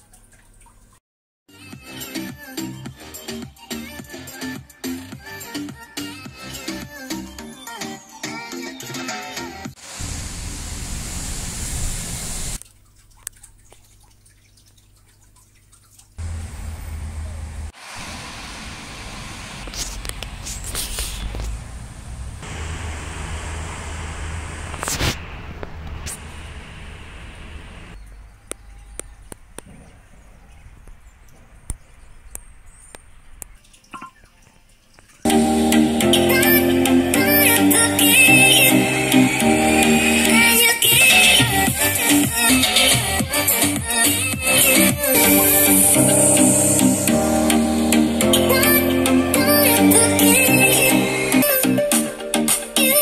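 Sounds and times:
low hum: 0:16.2 - 0:33.5.

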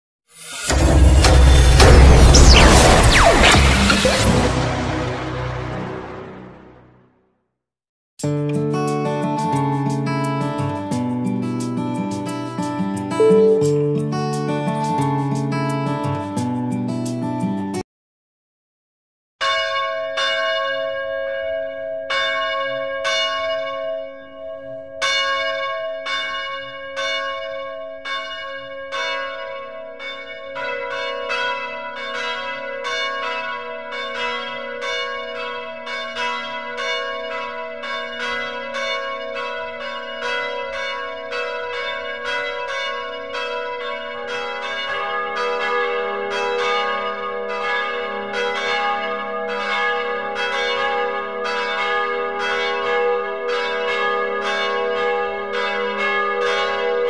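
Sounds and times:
lower bell striking: 0:13.2 - 0:14.5
church bells ringing: 0:13.2 - 0:14.6, 0:19.4 - 0:57.0.

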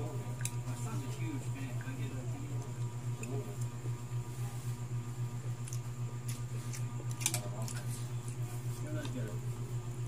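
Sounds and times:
low pulsing hum: 0:00.0 - 0:10.0.

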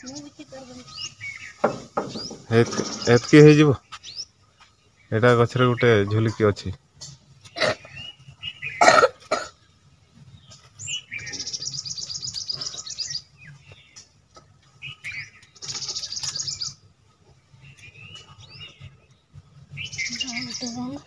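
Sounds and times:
songbird trilling: 0:00.0 - 0:04.3, 0:07.4 - 0:09.4, 0:10.4 - 0:14.2, 0:14.8 - 0:16.9, 0:17.6 - 0:21.0
bird chirps: 0:00.0 - 0:21.0.

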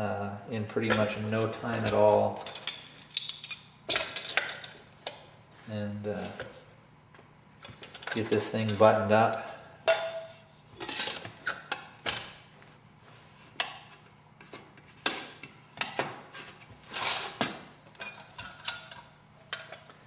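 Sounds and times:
metal pots clinking and knocking: 0:09.9 - 0:11.2.

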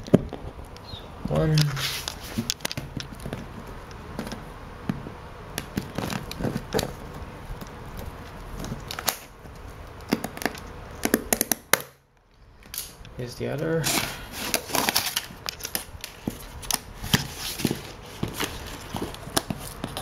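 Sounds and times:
blades scraping cardboard box: 0:16.2 - 0:20.0.

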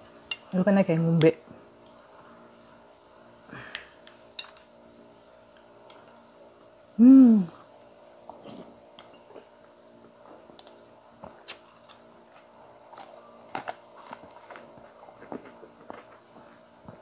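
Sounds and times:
faint steady hum: 0:00.0 - 0:17.0
person chewing food: 0:10.6 - 0:15.6.

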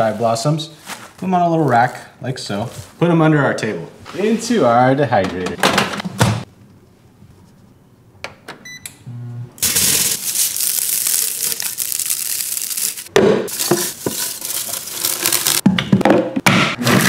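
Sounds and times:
dried stems crackling and rustling: 0:09.6 - 0:15.6.

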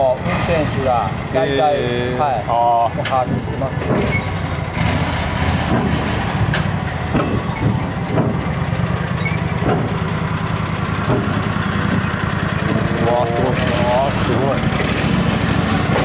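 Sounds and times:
rail-car mover engine running: 0:00.0 - 0:16.0
knocks from moving railcar: 0:03.0 - 0:04.4, 0:05.6 - 0:10.2, 0:10.9 - 0:12.9.

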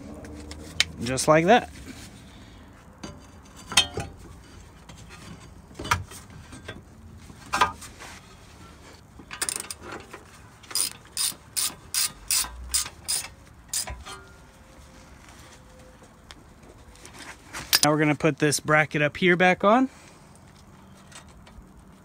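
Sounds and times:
ratchet clicking: 0:10.7 - 0:13.9.

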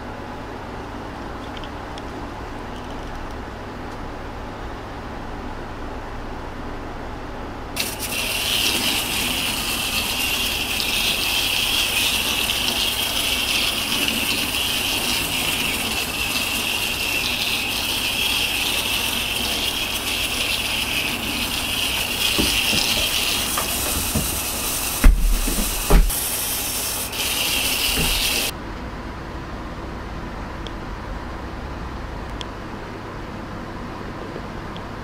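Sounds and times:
toy train whirring rattle: 0:07.8 - 0:28.5.

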